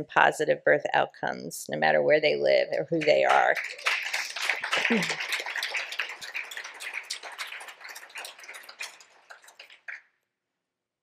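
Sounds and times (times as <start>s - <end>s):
audience applause: 3.0s - 9.9s.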